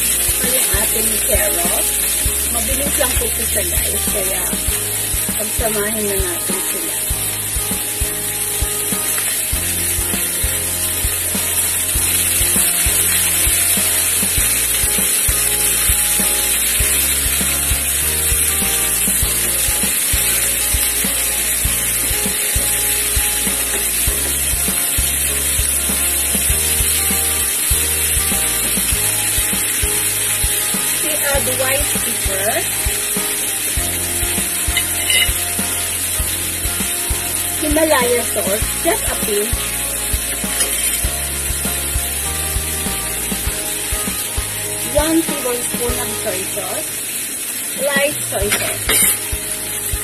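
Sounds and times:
background music with bass line: 0:00.0 - 0:46.4, 0:48.1 - 0:50.0
vegetables sizzling in a frying pan: 0:00.0 - 0:50.0.

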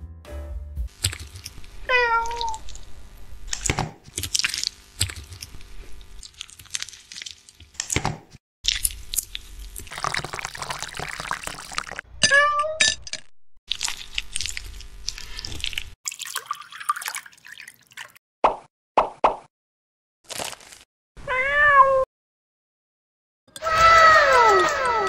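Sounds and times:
cat meowing: 0:01.9 - 0:02.6, 0:21.2 - 0:22.1
milk pouring into a glass: 0:09.8 - 0:12.0, 0:15.6 - 0:18.2.

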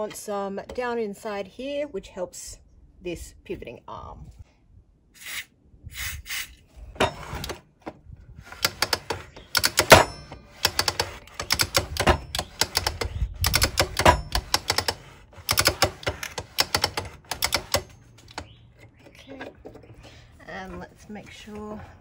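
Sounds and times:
mitre saw arm clicking and clattering: 0:08.5 - 0:18.6.

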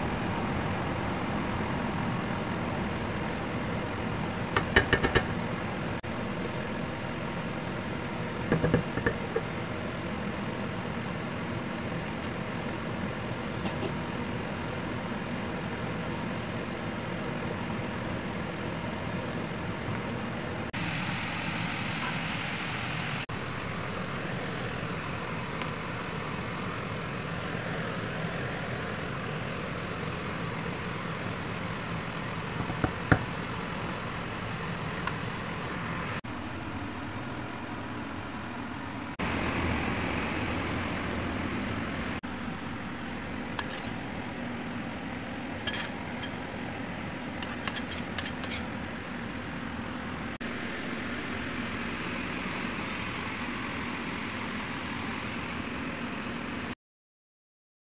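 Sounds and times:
steady background hum: 0:00.0 - 0:56.8
utensil clinking on a plate: 0:43.6 - 0:44.0, 0:45.7 - 0:46.4, 0:47.4 - 0:48.7.

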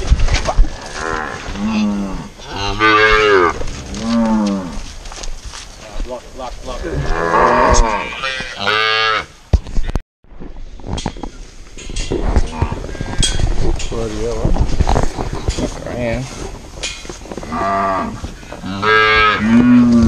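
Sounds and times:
cows mooing: 0:00.7 - 0:04.9, 0:06.8 - 0:09.3, 0:17.4 - 0:20.0.

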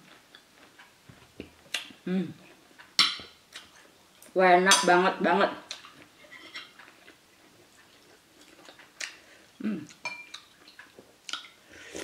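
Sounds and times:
cutlery scraping dishes: 0:06.2 - 0:06.9
person murmuring: 0:09.6 - 0:09.9.

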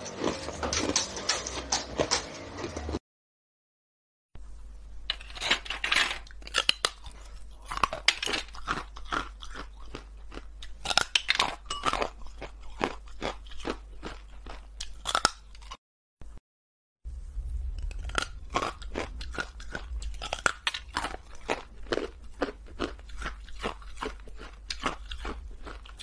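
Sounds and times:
ice being chewed: 0:00.0 - 0:02.8, 0:06.2 - 0:15.8, 0:17.8 - 0:26.0.

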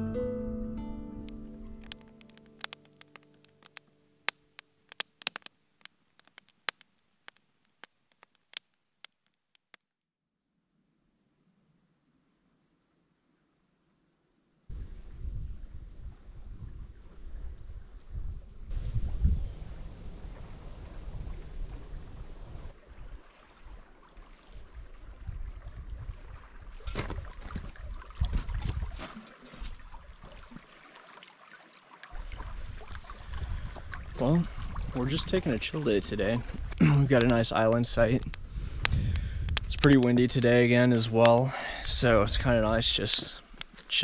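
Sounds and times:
wood fire crackling: 0:01.2 - 0:09.8, 0:34.0 - 0:44.0
wind on microphone: 0:14.7 - 0:29.8, 0:32.2 - 0:40.4.

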